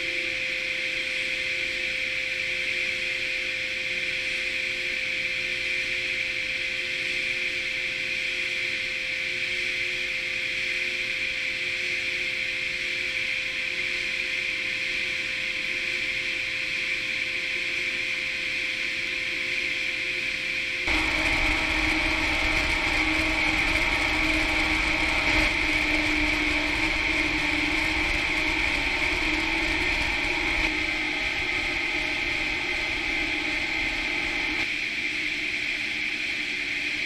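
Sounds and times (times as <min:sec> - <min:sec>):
deep rumble: 0:20.9 - 0:34.6
centrifuge whirring and hissing: 0:20.9 - 0:34.7
constant hum: 0:20.9 - 0:37.0.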